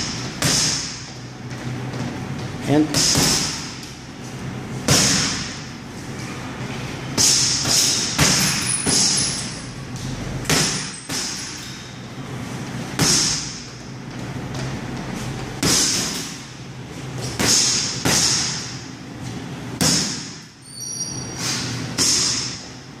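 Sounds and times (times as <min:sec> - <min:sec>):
gloves punching heavy bag: 0:00.0 - 0:01.2, 0:02.0 - 0:03.8, 0:04.8 - 0:05.6, 0:07.2 - 0:09.5, 0:10.4 - 0:11.6, 0:13.0 - 0:16.4, 0:17.2 - 0:18.7, 0:19.8 - 0:20.5, 0:21.5 - 0:22.7.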